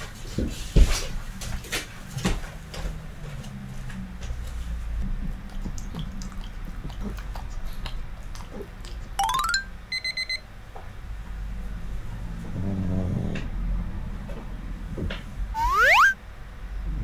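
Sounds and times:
rising run of cartoon tones: 0:09.2 - 0:09.8, 0:15.6 - 0:16.2
rapid alarm-like beeping: 0:15.6 - 0:16.2.

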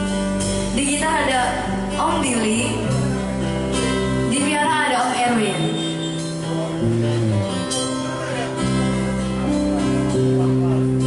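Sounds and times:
acoustic band playing: 0:00.0 - 0:11.0
woman singing: 0:04.3 - 0:05.7.

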